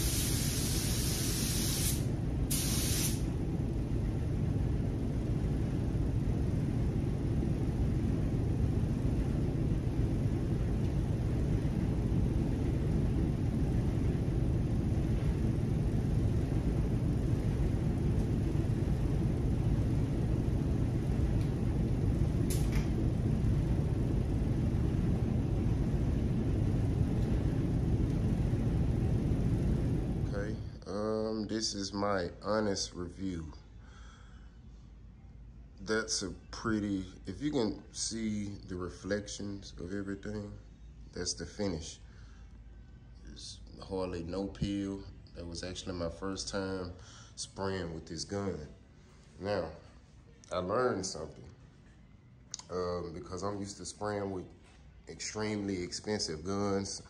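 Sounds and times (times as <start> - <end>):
spray gun hissing: 0.0 - 3.3
ventilation low rumble: 0.0 - 57.0.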